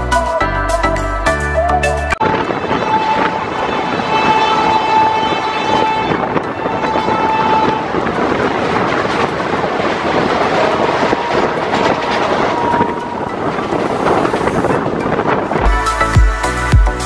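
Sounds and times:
music: 0.0 - 4.2, 12.8 - 17.0
train rumble: 2.2 - 16.6
wheels clattering over rails: 6.3 - 15.5.

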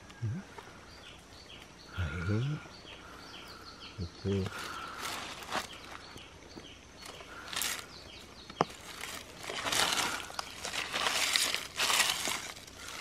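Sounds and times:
hand raking dry leaves: 8.6 - 13.0.

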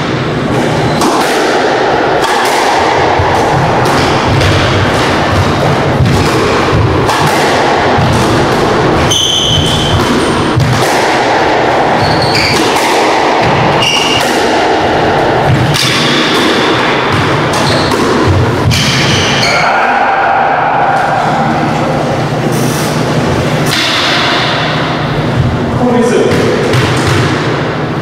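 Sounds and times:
squash ball thudding: 0.0 - 19.4, 23.6 - 27.9
shoes squeaking on court floor: 9.0 - 10.5, 12.0 - 12.8, 13.8 - 14.2, 17.5 - 18.0.

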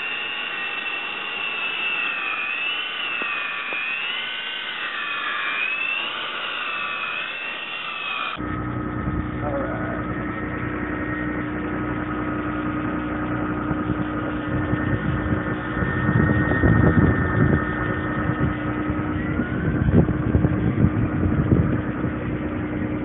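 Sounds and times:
toy helicopter motors whining: 0.0 - 8.4
rushing air: 0.0 - 23.0
spinning rotors whirring: 0.0 - 23.0.

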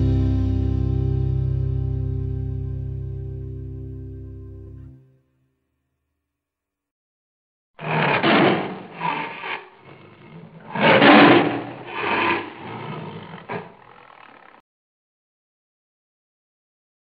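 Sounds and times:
dog making rough calls: 7.8 - 14.6.

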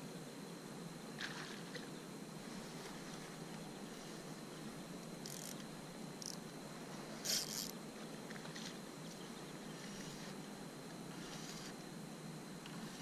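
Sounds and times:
faint steady hiss: 0.0 - 13.0
paddle splashing water: 1.2 - 1.9, 8.3 - 8.8.

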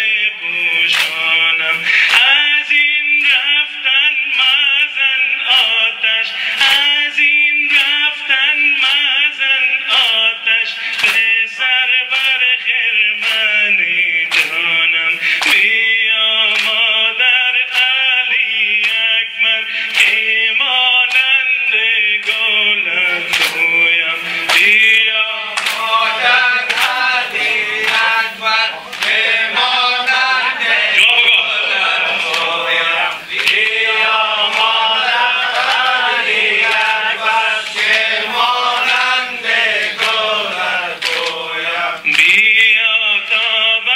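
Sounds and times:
man chanting a lament: 0.0 - 43.9.

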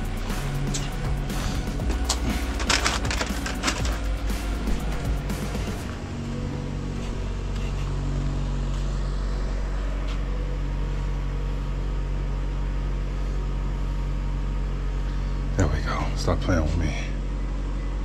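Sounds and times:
steady low machine hum: 0.0 - 18.0.

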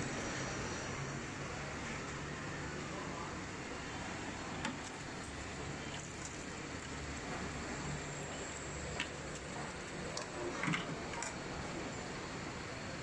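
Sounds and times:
food stall cooking noise: 0.0 - 13.0.

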